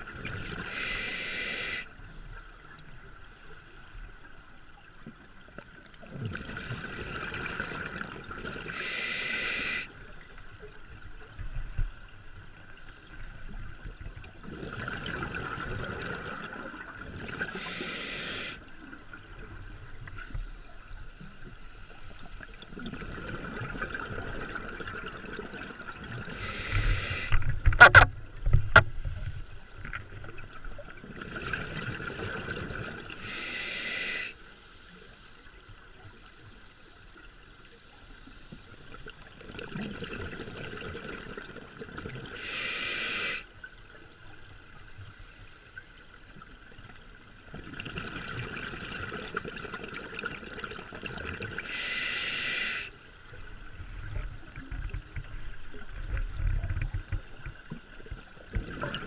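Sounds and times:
bubbling and hiss: 0.0 - 2.0, 5.7 - 10.5, 13.0 - 34.4, 38.2 - 43.6, 45.1 - 59.0
scuba regulator breathing underwater: 0.4 - 1.9, 8.7 - 10.0, 17.4 - 18.7, 26.3 - 27.5, 33.2 - 34.4, 42.3 - 43.5, 51.6 - 53.0.

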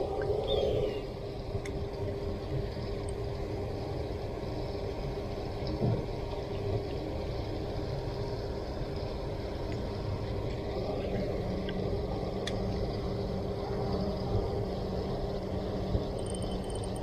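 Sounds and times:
faint ticks: 1.6 - 1.8, 2.6 - 3.3, 9.6 - 10.6, 11.6 - 12.7, 16.2 - 17.0.

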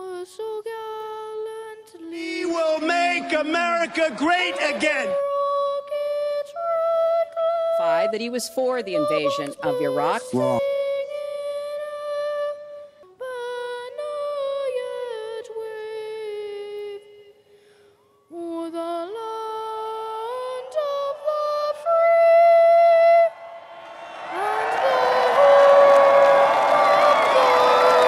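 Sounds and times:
choir singing held notes: 20.0 - 28.0.

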